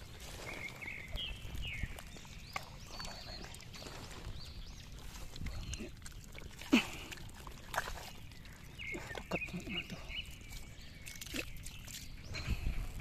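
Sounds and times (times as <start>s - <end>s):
hands squelching in wet mud: 0.0s - 13.0s.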